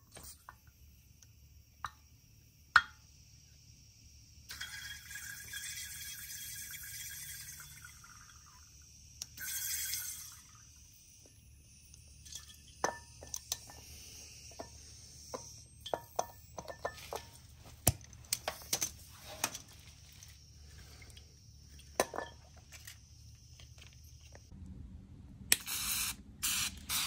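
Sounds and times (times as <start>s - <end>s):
compressed air hiss: 13.5s - 15.7s, 25.6s - 27.0s.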